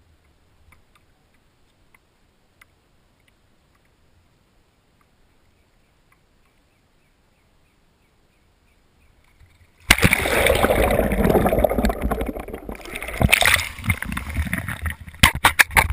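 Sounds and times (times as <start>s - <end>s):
water sloshing and gurgling: 9.4s - 15.9s.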